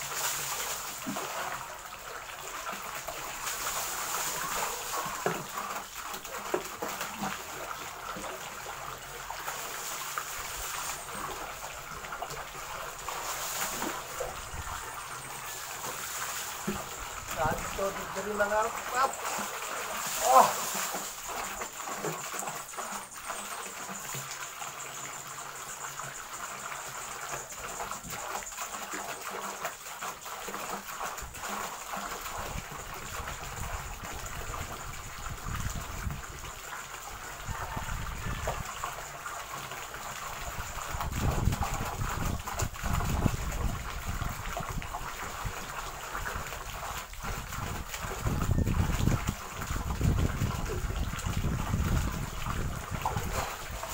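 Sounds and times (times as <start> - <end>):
water pouring into tank: 0.0 - 53.9
person splashing in water: 18.8 - 21.6.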